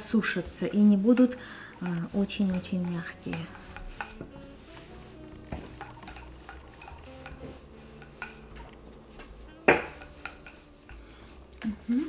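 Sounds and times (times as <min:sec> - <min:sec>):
rolling pin tapping on countertop: 0:00.2 - 0:04.5, 0:05.4 - 0:08.6, 0:09.6 - 0:11.0
rolling pin knock: 0:09.6 - 0:10.1.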